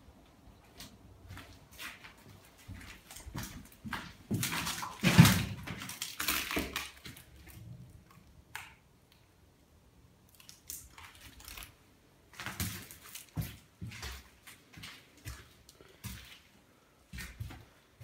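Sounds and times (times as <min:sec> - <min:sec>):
footsteps crunching over debris: 0:00.7 - 0:07.6, 0:11.0 - 0:17.8.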